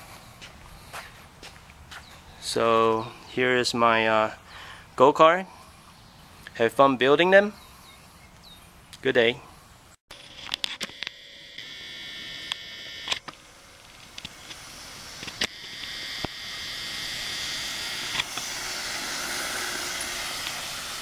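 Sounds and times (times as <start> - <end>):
cordless drill motor whining: 10.4 - 21.0.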